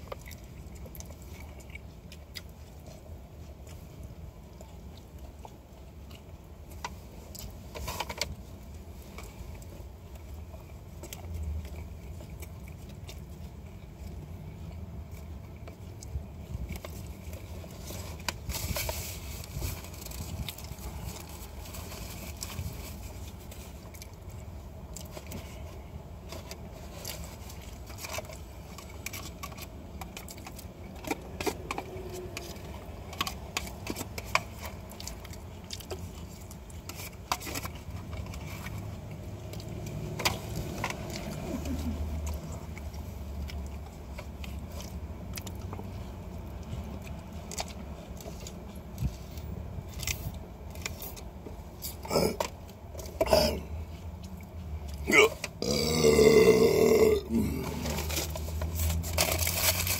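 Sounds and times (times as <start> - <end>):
person chewing: 0.0 - 59.9
food packaging crinkling: 15.1 - 53.5, 54.2 - 59.9
person burping: 52.1 - 52.4, 53.2 - 53.7, 55.0 - 58.0.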